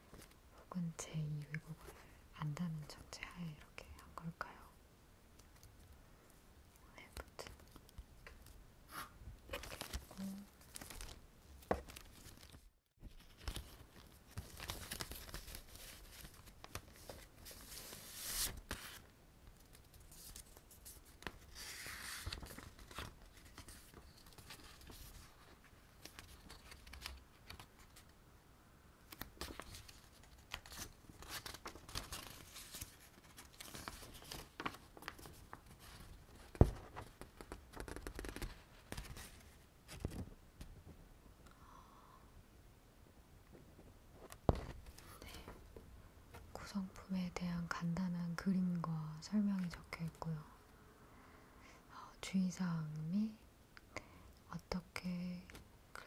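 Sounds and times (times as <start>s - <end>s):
paper leaflets handled: 9.5s - 28.1s, 29.1s - 40.4s.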